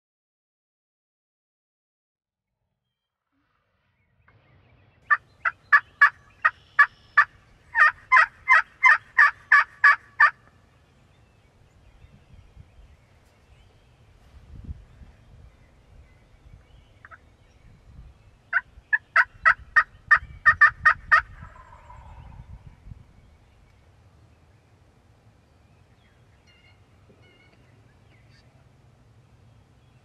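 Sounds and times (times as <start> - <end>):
turkey yelping: 5.1 - 10.5, 18.5 - 22.3.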